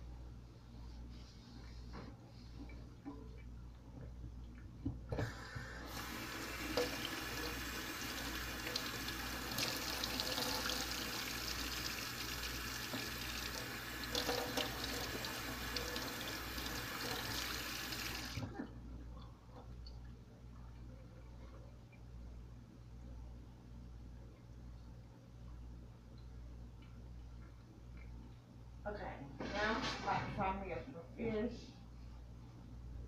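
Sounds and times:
faucet running into steel sink: 0:05.2 - 0:18.4.

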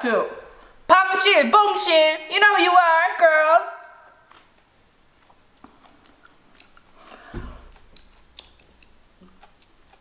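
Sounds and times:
soft thump: 0:07.3 - 0:07.7.

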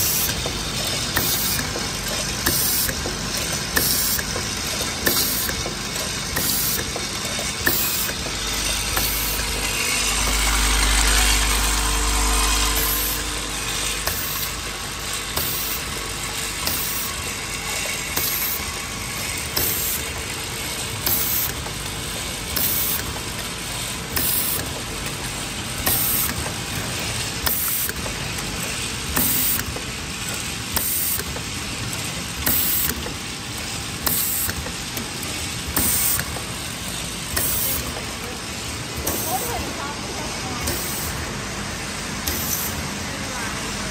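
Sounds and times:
machine mechanical clatter: 0:00.0 - 0:43.9
short sharp machine sound: 0:07.7 - 0:14.6.

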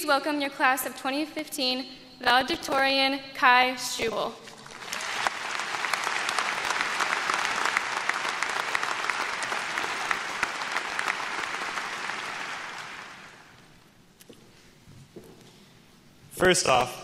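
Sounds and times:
audience applauding: 0:04.6 - 0:13.8.

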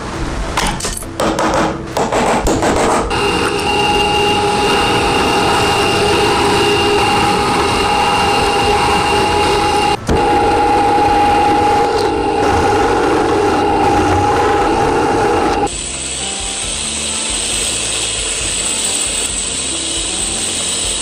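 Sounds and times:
drill press drilling metal: 0:16.0 - 0:21.0.

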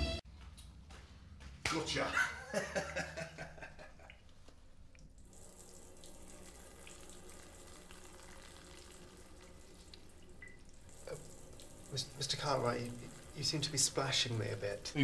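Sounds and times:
urine splashing in metal urinal: 0:05.2 - 0:15.0.

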